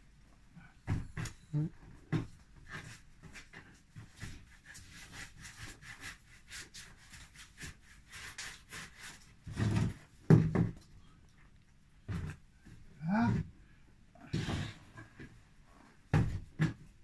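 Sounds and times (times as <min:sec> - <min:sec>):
hands rubbing dough: 0:02.5 - 0:09.5.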